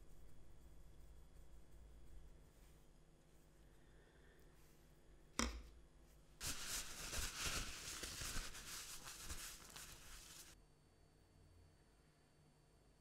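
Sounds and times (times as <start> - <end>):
crackly scratchy rustling: 6.4 - 10.6.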